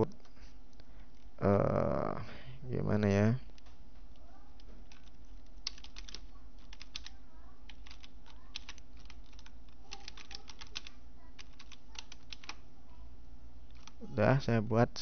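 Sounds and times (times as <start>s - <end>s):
typing on computer keyboard: 4.6s - 12.6s, 13.7s - 14.0s.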